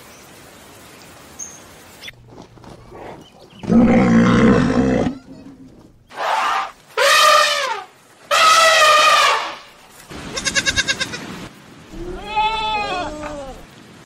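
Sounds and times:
elephants trumpeting: 2.8 - 9.7
goat bleating: 4.5 - 5.8, 10.3 - 11.2.

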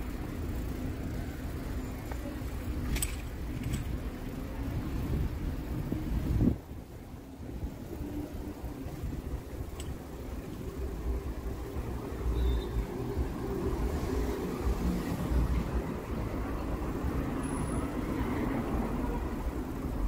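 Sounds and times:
car engine and tyre rumble: 0.0 - 20.0.

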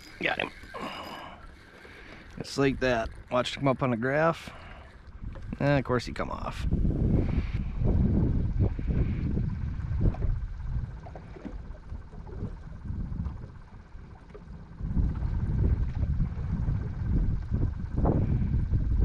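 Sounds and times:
wind buffeting microphone: 5.1 - 19.0.

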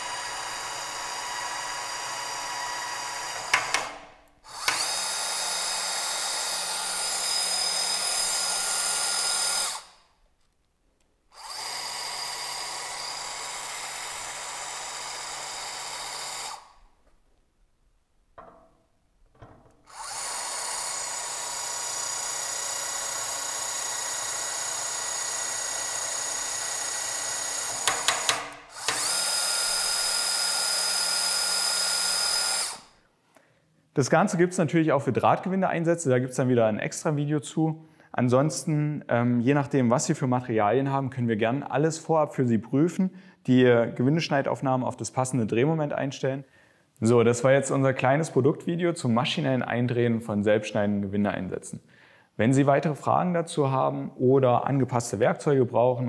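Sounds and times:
tapping arm motor running: 0.0 - 9.9, 11.4 - 16.7, 19.9 - 32.8.

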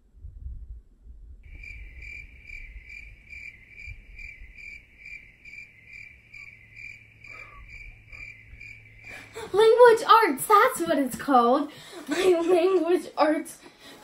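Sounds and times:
cricket chirping: 1.5 - 9.4.

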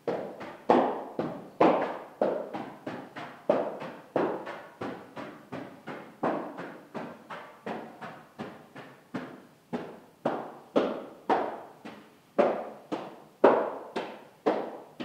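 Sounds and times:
echoing footsteps: 0.0 - 15.0.

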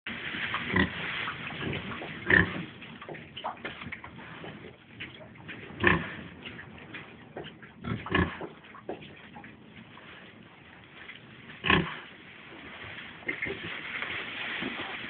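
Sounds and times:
pigs grunting: 0.5 - 10.6, 11.2 - 12.2.

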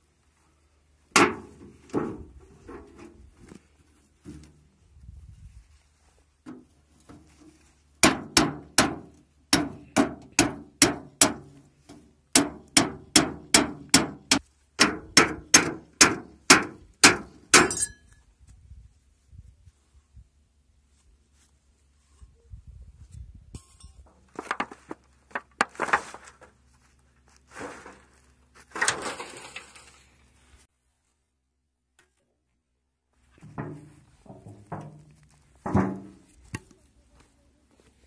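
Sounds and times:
hammer striking hatchet on metal tin: 12.4 - 18.0.

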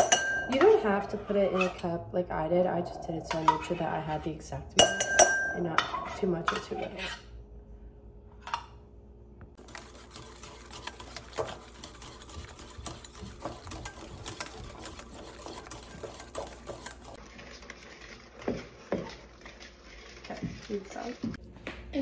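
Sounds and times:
stirring thick batter: 0.1 - 2.0, 9.6 - 21.4
wire whisk beating in a bowl: 4.8 - 5.6, 9.6 - 21.4.

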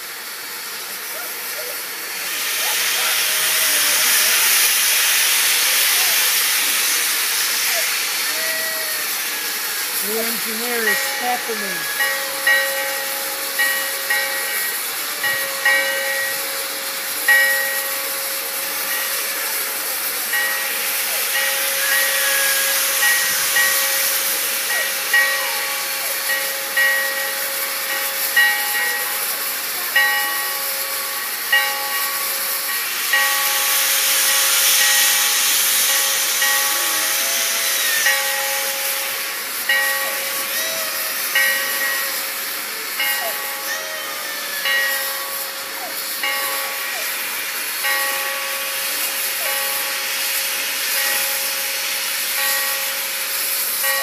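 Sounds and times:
escaping steam hissing: 0.0 - 54.0
short steam pulses: 30.6 - 53.9.

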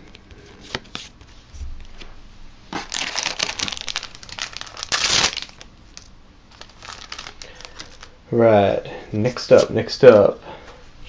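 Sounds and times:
wrapper crinkling and tearing: 2.8 - 8.2.

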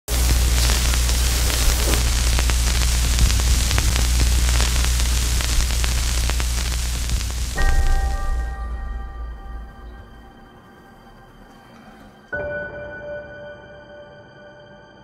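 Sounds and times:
loud static hiss: 0.0 - 11.4
static crackles: 0.0 - 11.6
low electrical hum: 0.1 - 11.8.

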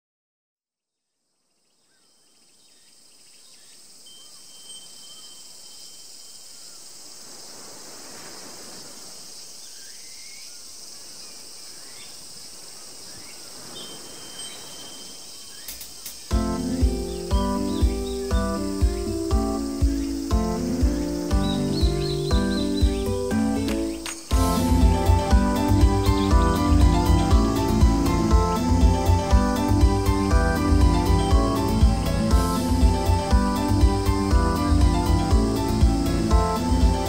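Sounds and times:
insects chirring: 1.2 - 37.0
short bird chirps: 13.1 - 16.3
music with a beat: 16.3 - 37.0.

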